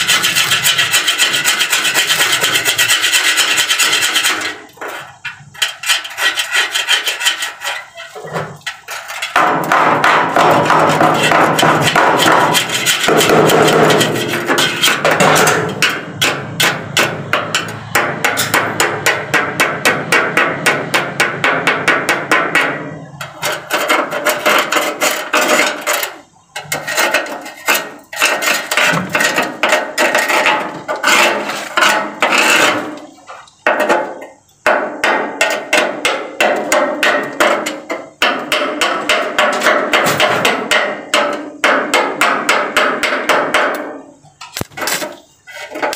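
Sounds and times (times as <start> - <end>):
hammer striking steel car body: 9.3 - 24.8, 33.8 - 44.0.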